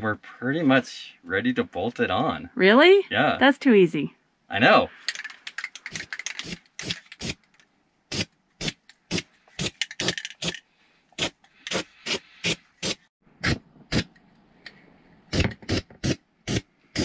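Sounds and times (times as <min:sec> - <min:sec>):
aerosol can rattling: 0:05.0 - 0:07.6, 0:08.7 - 0:10.6.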